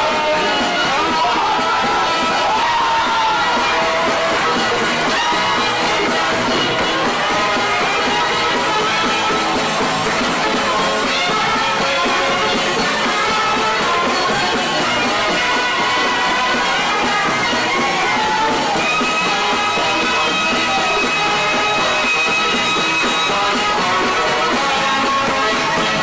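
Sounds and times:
double bass: 3.4s - 17.8s.

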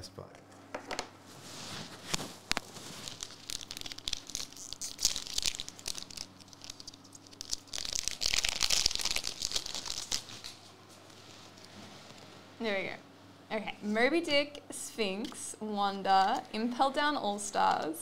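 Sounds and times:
wrapper crinkling and tearing: 2.0s - 10.6s.

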